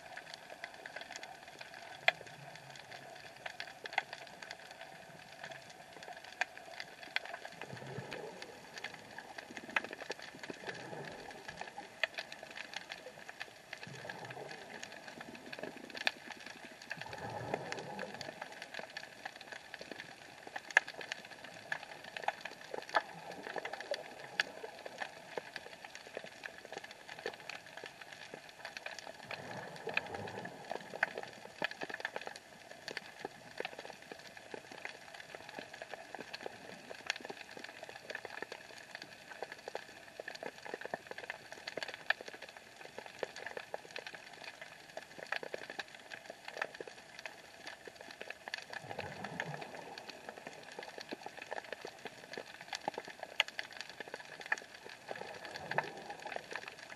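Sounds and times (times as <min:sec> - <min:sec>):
swells of moving water: 0:00.0 - 0:56.9
underwater crackling and clicking: 0:00.0 - 0:56.9.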